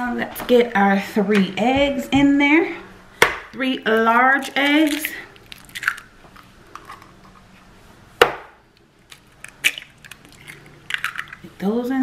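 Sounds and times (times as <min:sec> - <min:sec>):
egg cracking: 0:04.4 - 0:07.5, 0:08.2 - 0:11.5
eggshell clicks and crackles: 0:04.5 - 0:07.4, 0:08.7 - 0:11.5.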